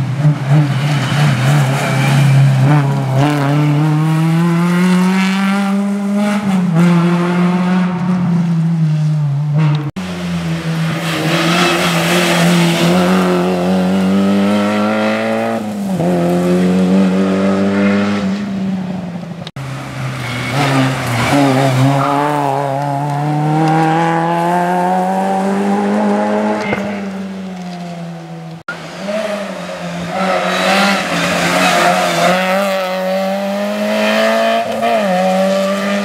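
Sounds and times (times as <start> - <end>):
rally car engines revving: 0.0 - 36.0.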